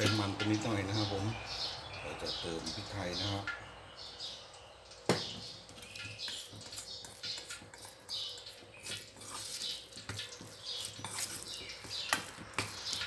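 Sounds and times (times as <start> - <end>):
spoon scraping wet minced meat: 5.5 - 13.0.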